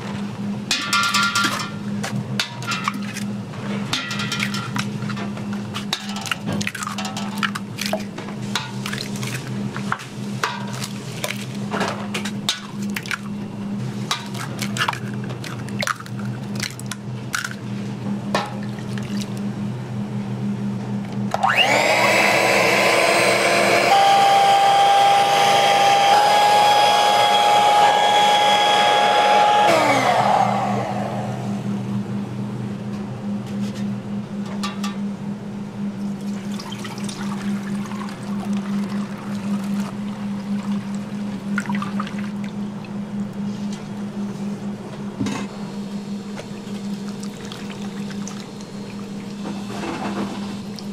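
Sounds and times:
steady low hum: 0:00.0 - 0:21.4, 0:29.7 - 0:50.9
electric blender running: 0:21.3 - 0:31.9.

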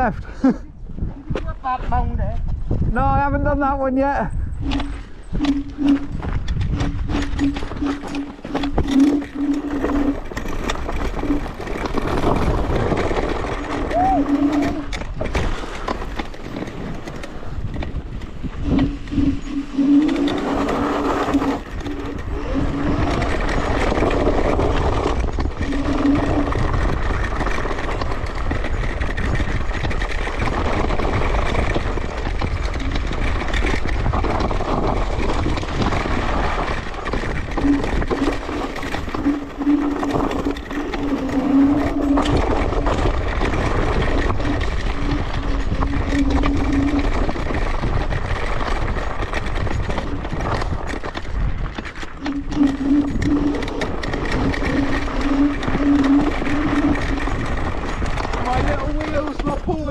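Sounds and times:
rumbling rush: 0:01.9 - 0:59.9
electric scooter motor whine: 0:04.5 - 0:59.9.

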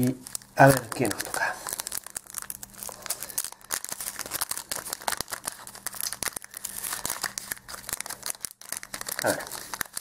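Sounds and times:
foil pack crinkling and tearing: 0:00.0 - 0:10.0.

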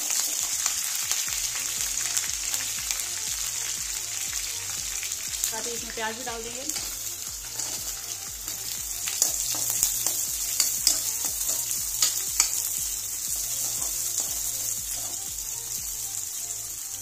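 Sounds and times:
onions sizzling in oil: 0:00.0 - 0:17.0
ladle clinking and scraping pan: 0:06.8 - 0:08.0, 0:13.6 - 0:15.3.

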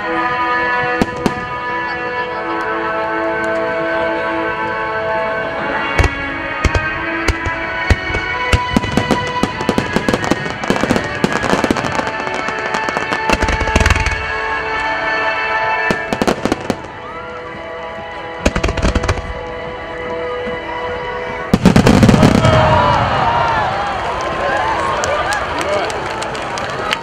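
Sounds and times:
music: 0:00.0 - 0:27.0
firework bangs and crackles: 0:00.9 - 0:01.7, 0:06.0 - 0:15.0, 0:15.8 - 0:20.4, 0:21.3 - 0:27.0
deep firework boom: 0:21.5 - 0:23.4.

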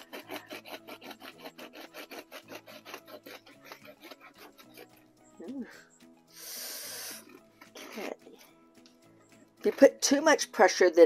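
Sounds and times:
bread knife sawing through crust: 0:00.0 - 0:05.0.

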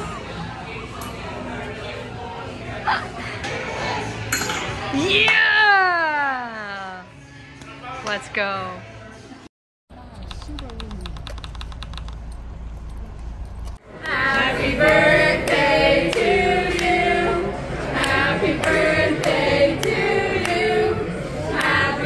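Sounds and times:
group of voices singing: 0:13.8 - 0:22.0.

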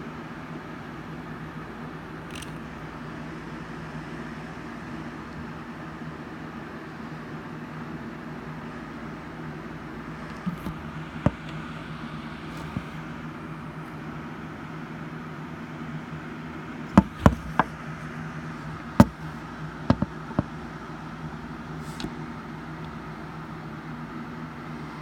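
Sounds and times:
low electrical hum: 0:00.0 - 0:25.0
phone handling clicks and knocks: 0:02.3 - 0:02.8, 0:10.2 - 0:13.2, 0:16.9 - 0:20.6.

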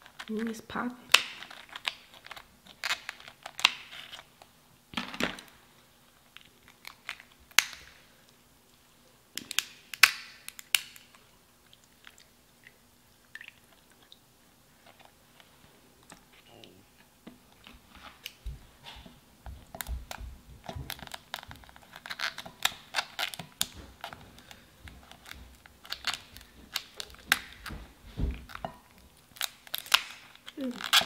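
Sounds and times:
shell crackling: 0:01.1 - 0:05.6, 0:06.2 - 0:08.0, 0:09.4 - 0:11.2, 0:19.8 - 0:27.8, 0:28.4 - 0:31.0.

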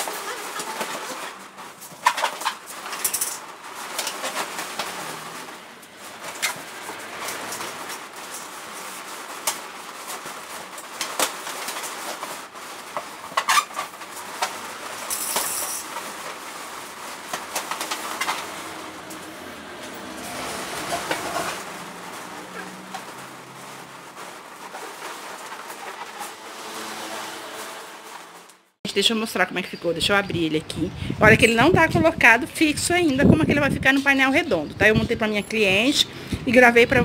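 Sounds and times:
balloons rubbing and squeaking: 0:00.0 - 0:03.0, 0:03.6 - 0:28.8.

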